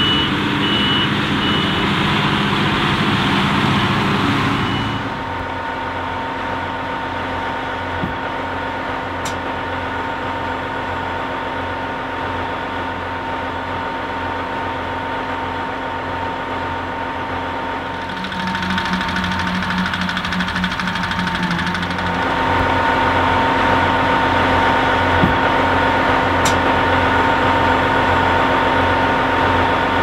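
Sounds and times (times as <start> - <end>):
harvester engine hum: 0.0 - 30.0.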